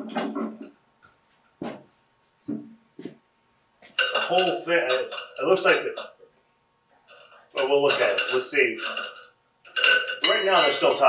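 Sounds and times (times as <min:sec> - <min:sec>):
iron weight plates clanking: 0:03.9 - 0:06.2, 0:07.1 - 0:11.0.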